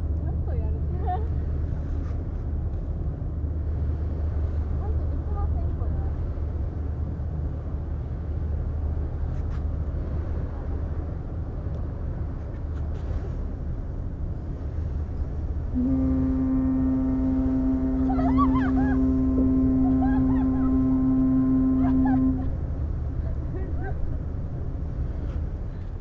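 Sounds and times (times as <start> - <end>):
ferry engine rumble: 0.0 - 26.0
ship's horn blast: 14.4 - 25.6.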